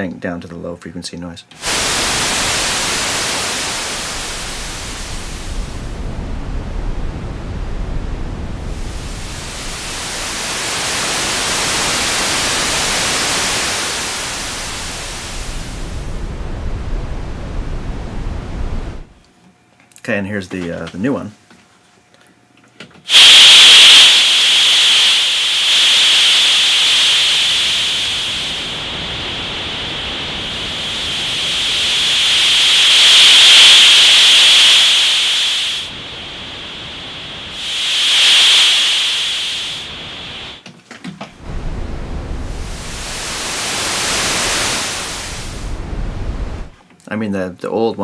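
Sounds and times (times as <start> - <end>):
low rumbling noise: 1.6 - 19.2, 23.1 - 40.6, 41.4 - 46.8
synthesizer noise hiss: 1.6 - 19.2, 23.1 - 40.6, 41.4 - 46.8.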